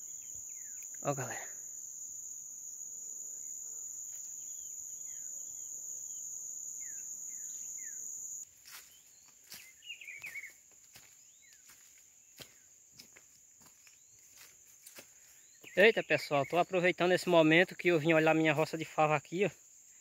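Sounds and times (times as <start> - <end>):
bird chirps: 0.0 - 1.2, 4.3 - 12.7, 15.2 - 17.0
insect buzzing high-pitched: 0.0 - 20.0
steps in dry leaf litter: 8.5 - 18.7.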